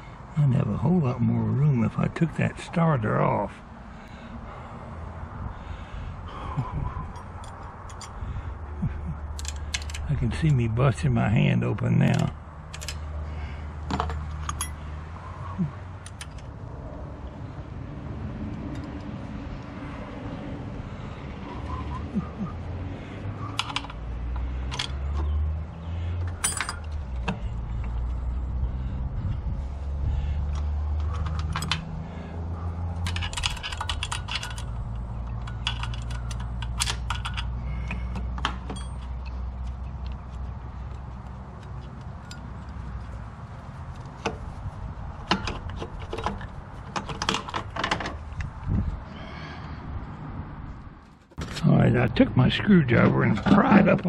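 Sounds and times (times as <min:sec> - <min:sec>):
metallic clicks of hand tools: 0:23.6 - 0:25.3, 0:33.0 - 0:40.2.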